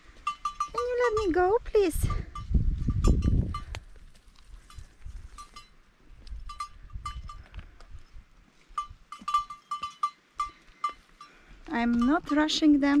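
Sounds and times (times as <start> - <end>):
sheep bell clinking: 0.0 - 3.8, 4.4 - 13.0
soft footsteps on path: 0.0 - 13.0.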